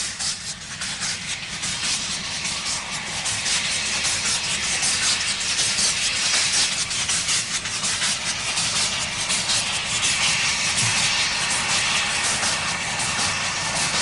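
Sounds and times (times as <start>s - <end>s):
steam hissing: 0.0s - 14.0s
steam locomotive exhaust chuffs: 0.0s - 14.0s.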